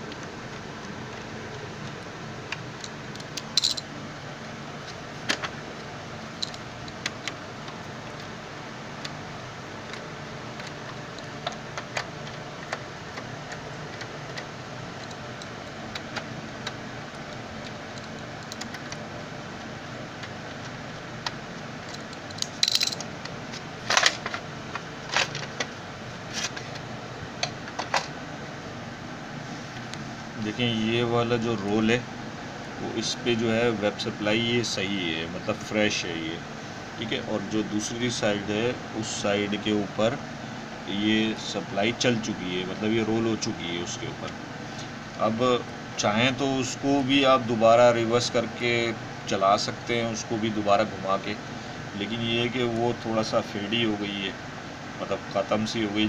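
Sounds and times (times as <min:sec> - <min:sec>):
steady hum: 0:00.0 - 0:56.0
small metallic clicks and clinks: 0:02.8 - 0:03.9, 0:21.9 - 0:23.1.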